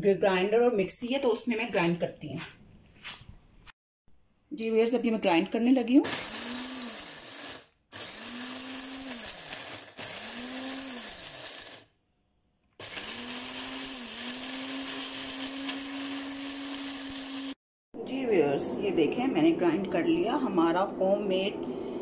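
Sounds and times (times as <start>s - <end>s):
mixer grinder motor grinding spices: 6.0s - 11.9s, 12.8s - 17.6s.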